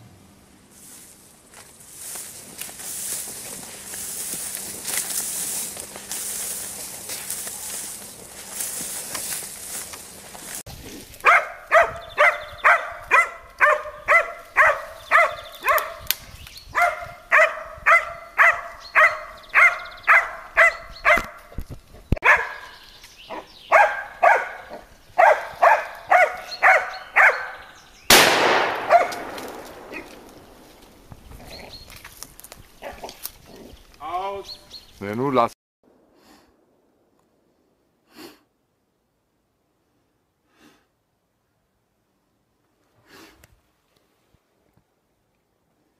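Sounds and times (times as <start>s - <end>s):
dog barking: 11.2s - 16.1s, 16.7s - 21.4s, 22.2s - 27.8s, 28.9s - 29.2s
loud bang: 28.1s - 30.9s.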